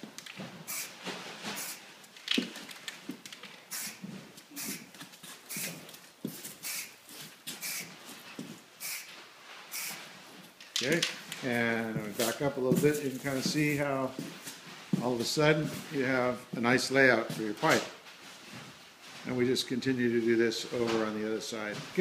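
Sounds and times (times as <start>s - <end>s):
footsteps: 0.0s - 19.6s, 20.2s - 22.0s
aerosol spray can hissing: 0.7s - 0.9s, 1.6s - 1.8s, 3.7s - 4.0s, 4.6s - 4.9s, 5.5s - 5.8s, 6.6s - 7.0s, 7.6s - 7.9s, 8.8s - 9.1s, 9.7s - 10.0s.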